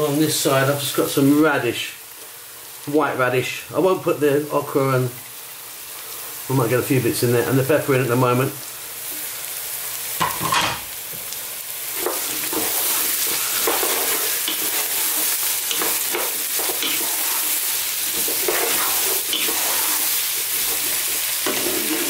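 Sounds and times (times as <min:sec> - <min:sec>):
vegetables sizzling in oil: 0:00.0 - 0:22.0
wooden spoon scraping a pot: 0:12.0 - 0:22.0.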